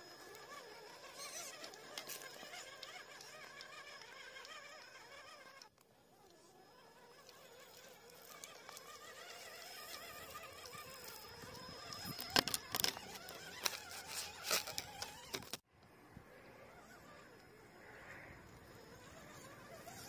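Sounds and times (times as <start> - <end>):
electric motor whine: 0.0 - 15.6.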